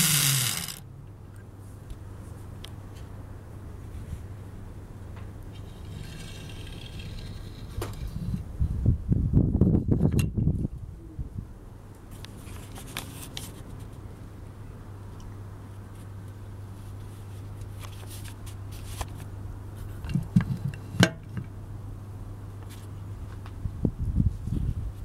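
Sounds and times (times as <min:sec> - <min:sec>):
clockwork motor humming: 0:00.0 - 0:00.8.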